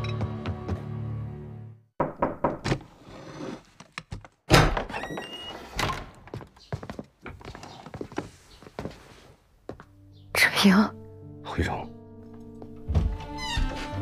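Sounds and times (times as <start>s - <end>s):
wooden doors thudding open: 4.5s - 6.2s
footsteps on floor: 6.3s - 10.0s, 12.6s - 14.0s.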